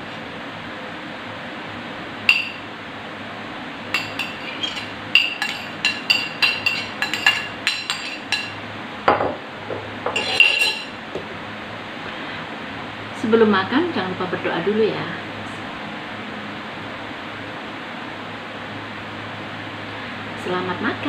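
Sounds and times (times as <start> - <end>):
metal spoon clinking against bowl: 2.3 - 2.6, 3.9 - 8.6, 10.1 - 11.0.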